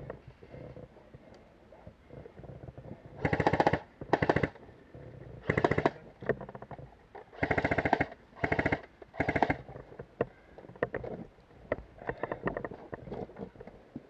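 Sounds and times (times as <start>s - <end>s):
airsoft rifle firing bursts: 3.2s - 4.6s, 5.4s - 6.0s, 7.4s - 9.6s.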